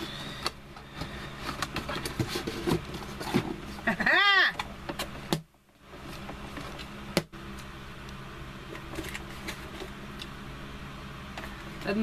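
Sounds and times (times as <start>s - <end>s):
cardboard box handling noises: 0.8s - 3.9s.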